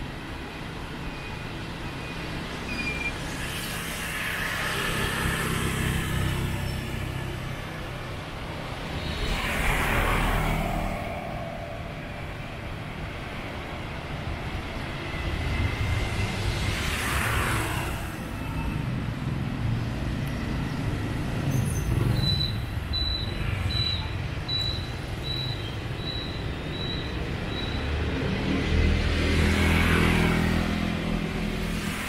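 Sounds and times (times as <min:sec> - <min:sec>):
high electronic beeps: 0:22.1 - 0:27.9.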